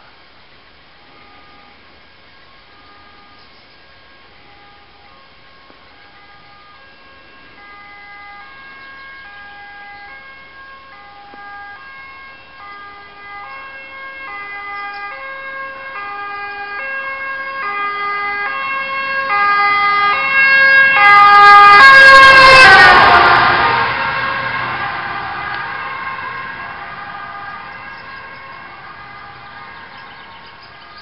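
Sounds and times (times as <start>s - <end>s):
vehicle rumble: 0.0s - 31.0s
two-tone emergency siren: 1.0s - 31.0s.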